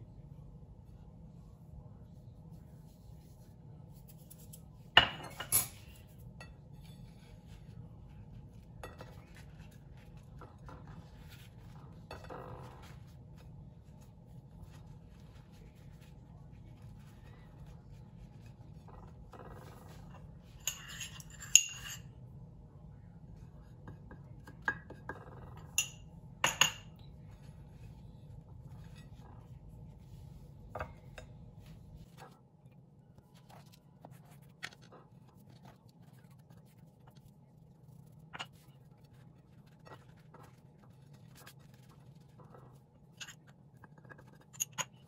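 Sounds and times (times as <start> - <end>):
ceramic dishware clinking: 4.9 - 6.6, 20.6 - 22.0, 24.7 - 27.0.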